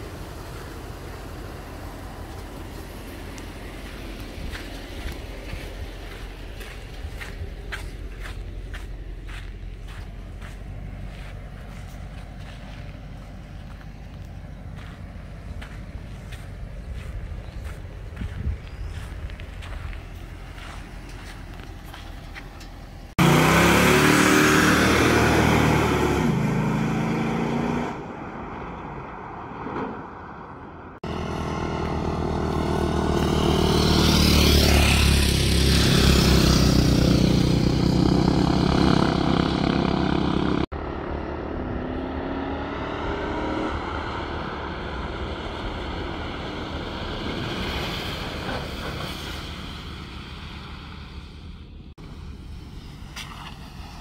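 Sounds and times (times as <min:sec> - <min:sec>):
dirt bike passing: 0:02.6 - 0:22.4, 0:23.2 - 0:28.1, 0:31.0 - 0:51.4
car engine revving: 0:23.0 - 0:28.1.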